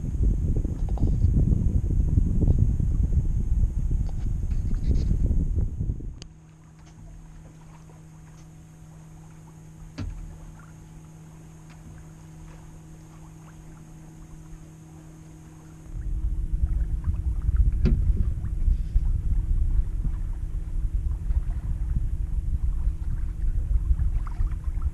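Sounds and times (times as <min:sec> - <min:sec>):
wind buffeting microphone: 0:00.0 - 0:06.3, 0:15.4 - 0:24.9
steady low hum: 0:00.0 - 0:24.9.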